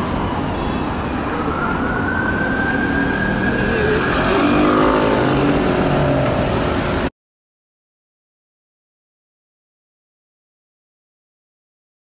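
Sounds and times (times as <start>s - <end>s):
fire engine siren wailing: 0.0s - 6.6s
street engine noise: 0.0s - 7.1s.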